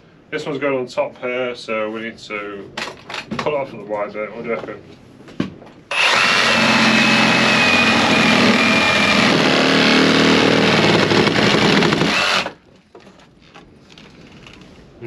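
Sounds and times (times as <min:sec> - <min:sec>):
reciprocating saw cutting wood: 0:05.9 - 0:12.6.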